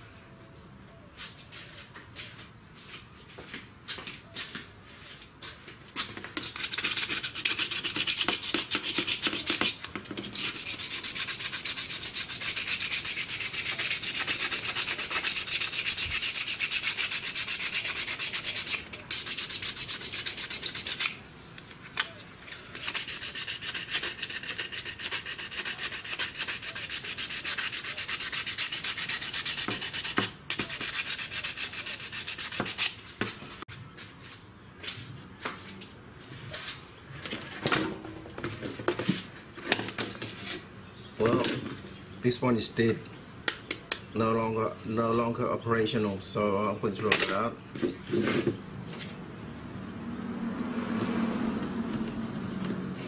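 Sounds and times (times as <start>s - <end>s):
hand sanding scratching strokes: 6.0s - 21.2s, 22.5s - 33.7s.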